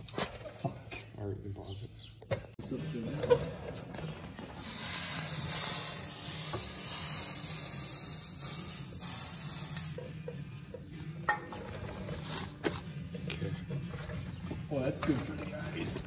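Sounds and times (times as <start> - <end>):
aerosol can spraying hiss: 4.6 - 10.0.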